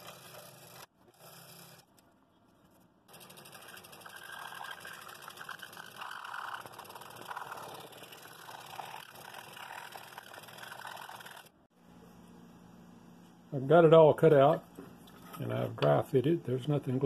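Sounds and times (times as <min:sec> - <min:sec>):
scroll saw cutting wood: 0:00.0 - 0:01.9, 0:03.1 - 0:11.6.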